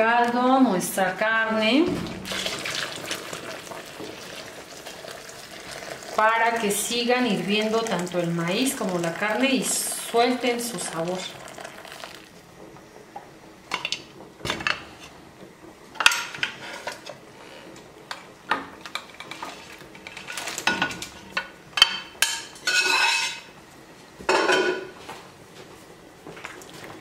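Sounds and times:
liquid pouring: 0:02.0 - 0:12.4.

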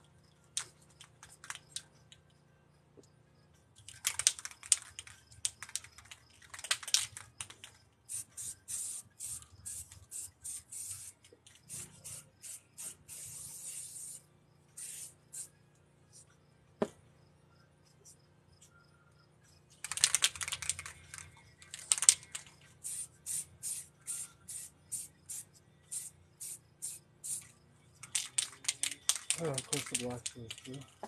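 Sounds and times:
spray can rattling: 0:03.8 - 0:14.2, 0:14.8 - 0:15.5, 0:19.8 - 0:30.8
spray can hissing: 0:08.1 - 0:14.2, 0:14.8 - 0:15.5, 0:21.8 - 0:27.5, 0:28.1 - 0:30.1.

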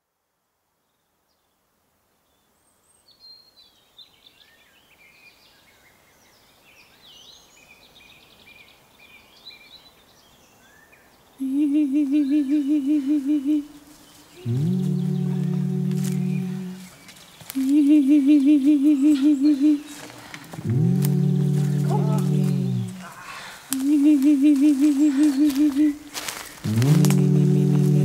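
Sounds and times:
birds singing and chirping: 0:13.8 - 0:28.0
loud pulsing hum: 0:14.4 - 0:19.8, 0:20.5 - 0:23.1, 0:23.8 - 0:28.0.

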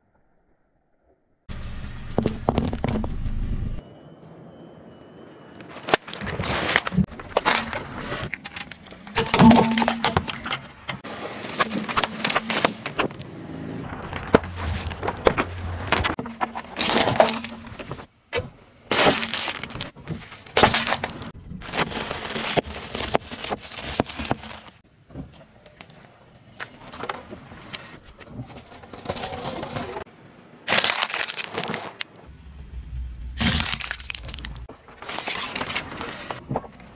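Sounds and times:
tyre crushing objects: 0:11.3 - 0:13.2, 0:33.4 - 0:35.9
dry noodles crunching: 0:30.7 - 0:32.1, 0:33.4 - 0:35.8.

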